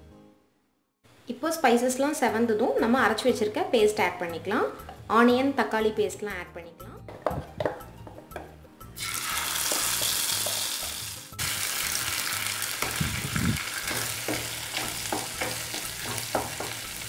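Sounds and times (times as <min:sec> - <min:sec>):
paste sizzling in hot oil: 0:09.0 - 0:17.0
spatula scraping pan: 0:13.7 - 0:17.0.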